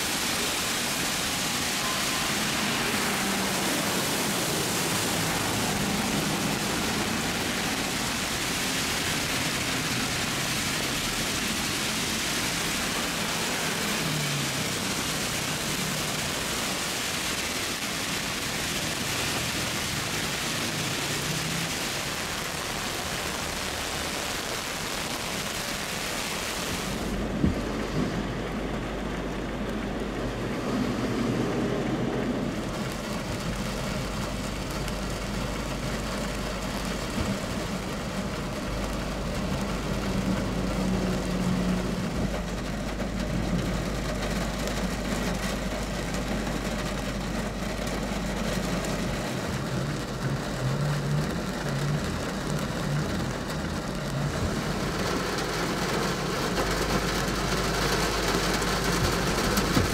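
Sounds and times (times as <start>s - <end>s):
heavy rain hissing: 0.0s - 59.9s
heavy vehicle engine hum: 0.0s - 59.9s.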